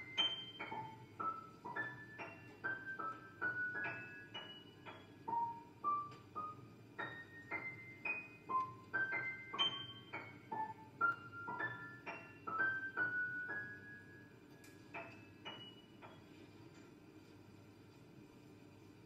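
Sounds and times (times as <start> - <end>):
piano single high notes: 0.0 - 14.3.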